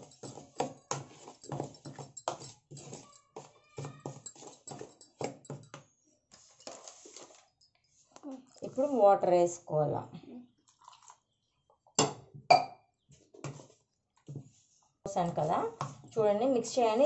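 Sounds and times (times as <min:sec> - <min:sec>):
spoon stirring flour in bowl: 0:00.0 - 0:09.0, 0:13.4 - 0:16.3.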